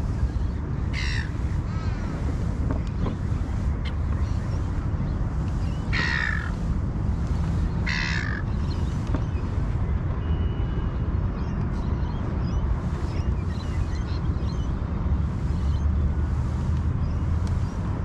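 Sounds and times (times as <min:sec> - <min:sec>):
wind rumble on microphone: 0:00.0 - 0:18.0
crow cawing: 0:00.9 - 0:02.0, 0:05.9 - 0:06.5, 0:07.8 - 0:08.4.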